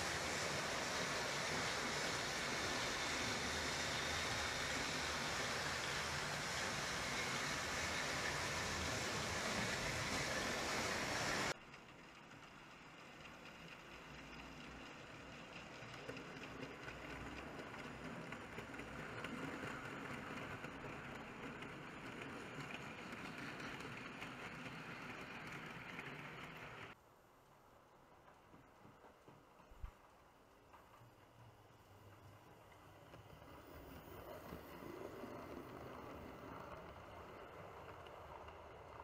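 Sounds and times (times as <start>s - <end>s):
loud steady hiss: 0.0s - 11.6s
model train running on track: 0.0s - 39.0s.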